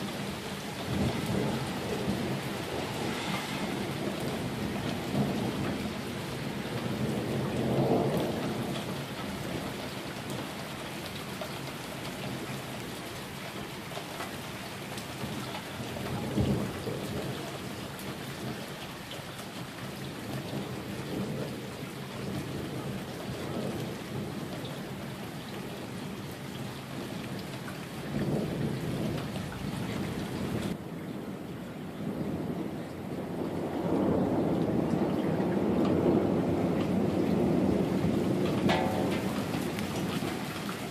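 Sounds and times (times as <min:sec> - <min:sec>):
thunder rumbling: 0:00.0 - 0:09.8, 0:28.1 - 0:40.9
steady rain falling: 0:00.0 - 0:40.9.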